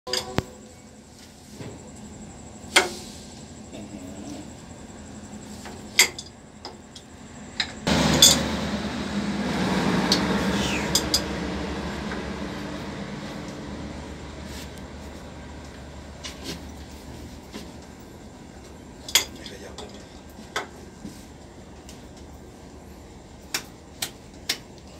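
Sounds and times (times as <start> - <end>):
steady mechanical noise: 0.1 - 24.9
spanner clinking against metal: 19.0 - 20.0.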